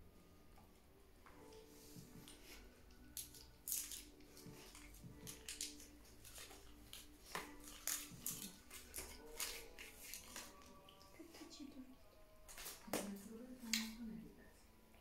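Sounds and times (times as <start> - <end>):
foil wrapper crinkling: 3.2 - 11.0.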